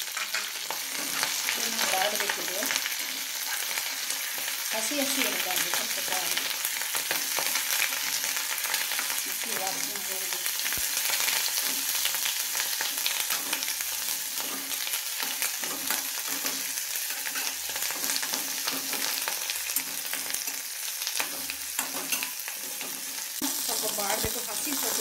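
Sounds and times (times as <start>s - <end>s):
metal spoon scraping a pan: 0.0s - 4.7s, 10.6s - 25.0s
leaves sizzling in hot oil: 0.0s - 25.0s.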